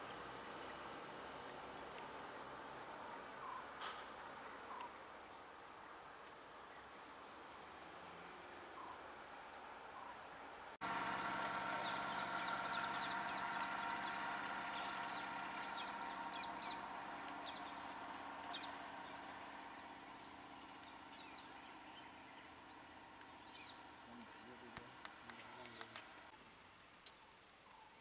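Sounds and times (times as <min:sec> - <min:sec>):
birds chirping: 0:00.0 - 0:07.1, 0:09.8 - 0:28.0
truck engine hum: 0:10.8 - 0:26.4.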